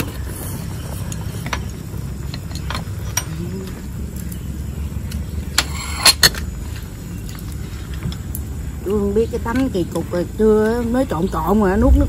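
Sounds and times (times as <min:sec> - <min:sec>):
utensils clinking against bowls: 0:00.0 - 0:04.4, 0:05.1 - 0:07.6
steady low rumble: 0:06.4 - 0:12.0.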